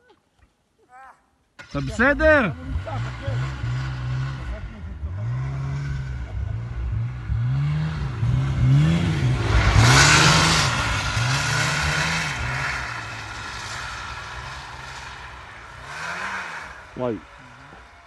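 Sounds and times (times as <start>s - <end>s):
snowmobile engine revving: 1.6s - 18.0s
rushing snow noise: 7.8s - 18.0s.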